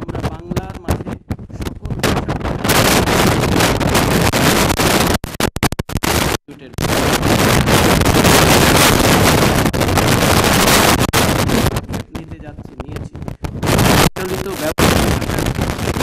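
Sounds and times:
person speaking: 0.0 - 2.6, 6.4 - 7.2, 11.9 - 16.0
distorted microphone crackling: 0.0 - 16.0.

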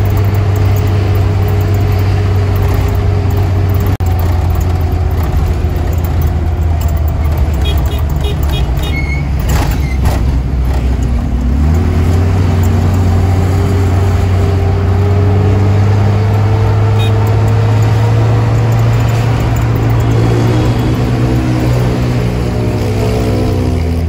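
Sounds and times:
road rumble: 0.0 - 24.0
van engine accelerating: 0.0 - 24.0.

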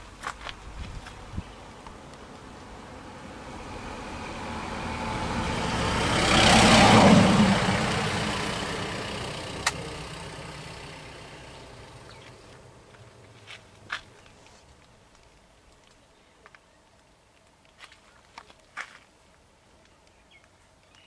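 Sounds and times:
vehicle driving past: 1.5 - 13.4
sharp click: 9.6 - 9.8.

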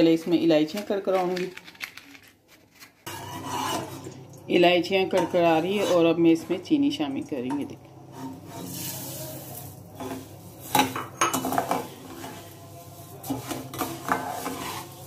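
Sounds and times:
ladle scraping and clinking on pan: 3.1 - 4.1, 8.1 - 15.0.

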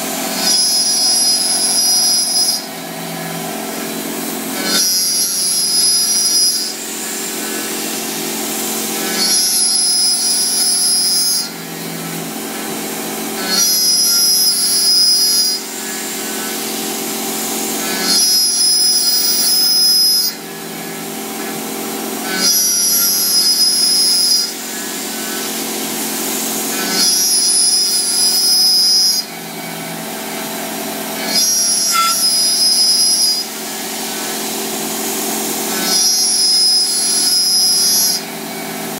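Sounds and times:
milling machine cutting whine: 0.0 - 38.9
spindle hum: 26.7 - 34.3.

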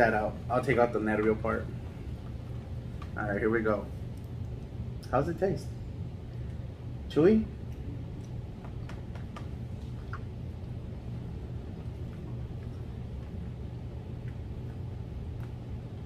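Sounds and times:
low hum: 0.0 - 16.0
soft chewing clicks: 4.0 - 5.1, 7.6 - 16.0.

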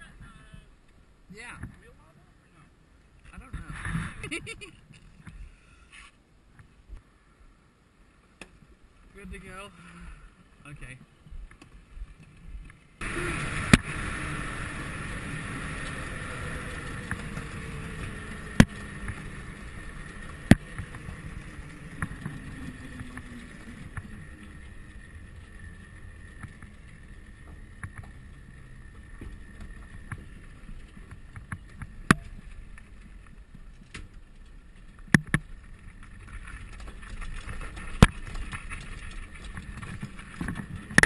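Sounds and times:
road rumble: 0.0 - 41.0
electric motor whine: 13.0 - 30.4.

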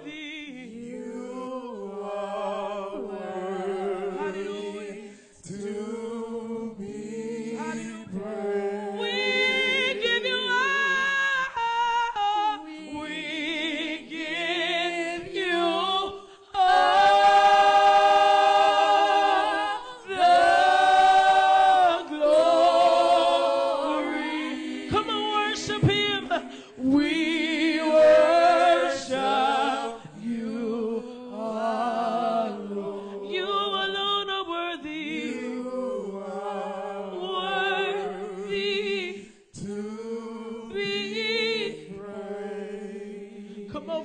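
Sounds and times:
gospel group singing: 0.0 - 44.0.

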